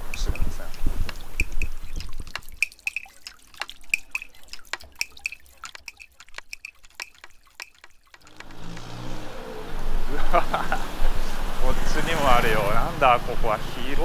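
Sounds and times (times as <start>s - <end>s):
water drops plinking into pool: 0.0s - 9.0s.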